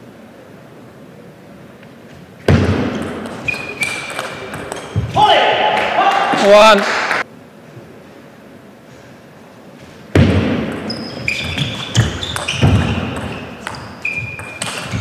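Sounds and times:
table tennis ball knocking: 0:02.5 - 0:05.1, 0:10.2 - 0:15.0
shoes squeaking on floor: 0:03.0 - 0:05.2, 0:10.7 - 0:15.0.

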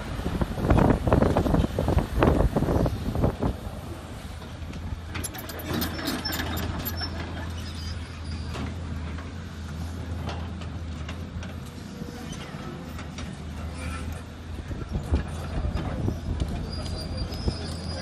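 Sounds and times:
excavator diesel engine running: 0:03.6 - 0:18.0
clanks and squeaks from bucket linkage: 0:05.1 - 0:09.4, 0:12.2 - 0:14.2, 0:14.8 - 0:18.0.

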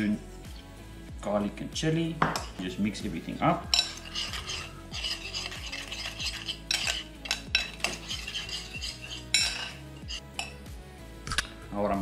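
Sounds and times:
metal spoon stirring in glass bowl: 0:03.7 - 0:10.6.

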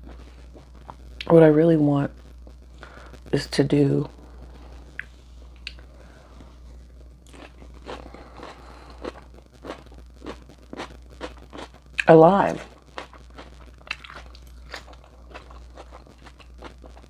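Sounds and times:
steady low hum: 0:00.0 - 0:17.0
wet chewing mouth clicks: 0:13.0 - 0:16.8.

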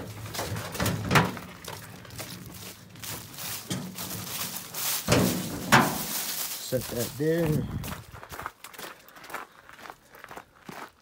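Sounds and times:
scrap items knocking and thudding: 0:00.0 - 0:01.8, 0:03.2 - 0:06.4.

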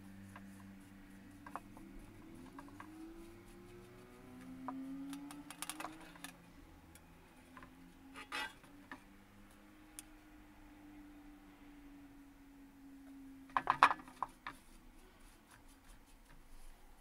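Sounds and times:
handling clicks and crackles: 0:03.8 - 0:07.8.

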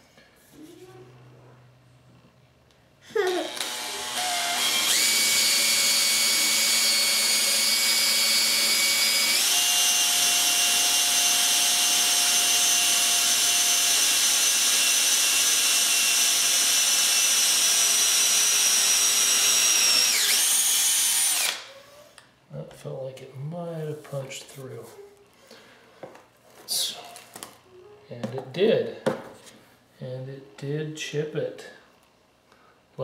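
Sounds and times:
cordless drill boring through wood: 0:03.2 - 0:22.2.

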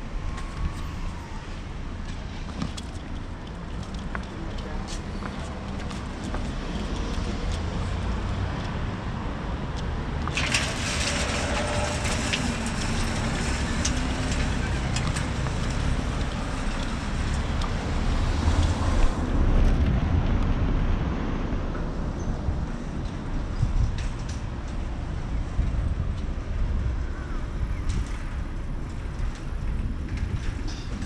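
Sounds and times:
traffic rumble: 0:00.0 - 0:31.0
wind on microphone: 0:10.4 - 0:31.0.

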